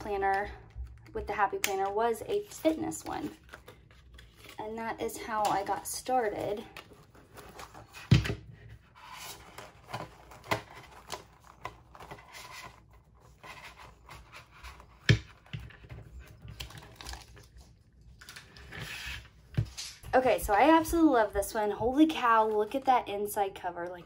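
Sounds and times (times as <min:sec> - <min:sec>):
paper pages rustling: 0:02.3 - 0:04.6, 0:06.4 - 0:20.0.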